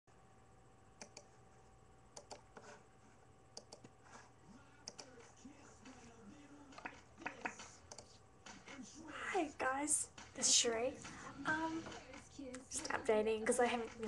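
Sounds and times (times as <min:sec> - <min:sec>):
computer keys clicking: 0:01.0 - 0:01.3, 0:02.1 - 0:02.5, 0:03.6 - 0:03.9, 0:04.8 - 0:05.2, 0:06.7 - 0:08.2.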